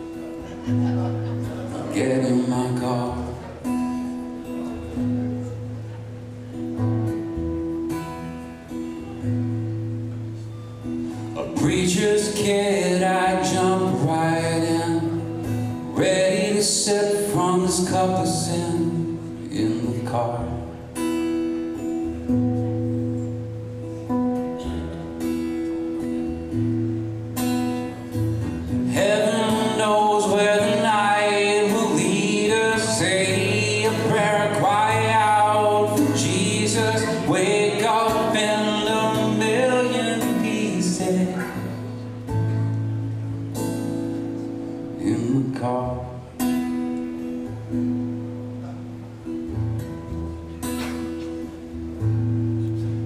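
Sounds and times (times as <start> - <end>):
acoustic guitar strumming: 0.0 - 53.0
man singing: 1.6 - 3.7, 11.2 - 21.0, 28.8 - 42.1, 44.9 - 46.5.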